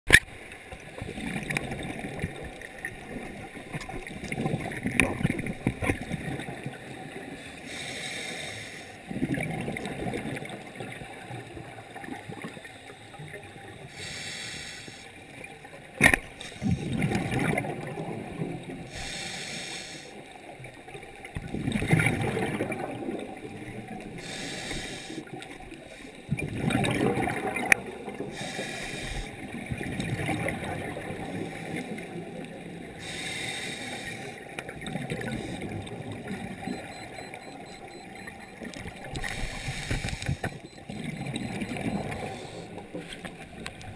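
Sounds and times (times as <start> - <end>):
gurgling exhaled bubbles: 1.0 - 7.3, 9.1 - 12.6, 16.6 - 18.9, 21.4 - 24.3, 26.3 - 33.2, 34.3 - 43.9
regulator hissing inhalation: 7.7 - 9.0, 14.0 - 15.1, 18.9 - 20.1, 24.2 - 25.3, 28.4 - 29.3, 33.0 - 34.4, 39.3 - 40.5.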